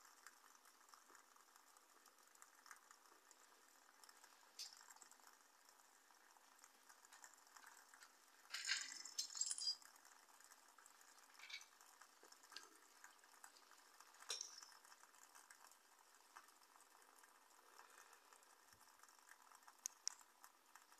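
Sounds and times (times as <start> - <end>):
stove burning with hiss: 0.0 - 20.9
light metallic clinks: 8.4 - 9.9, 14.2 - 14.9.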